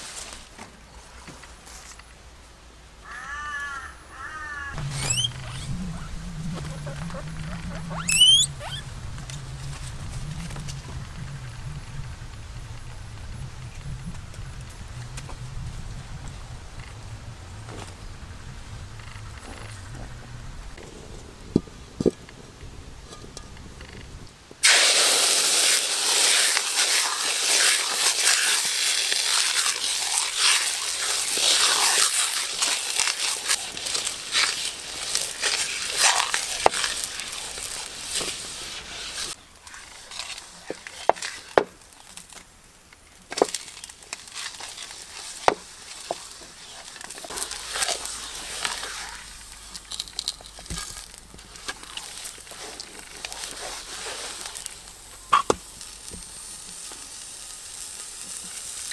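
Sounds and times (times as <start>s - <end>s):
wood fire crackling and popping: 4.8s - 58.9s
pork sizzling in a hot wok: 24.6s - 42.4s, 43.3s - 58.9s.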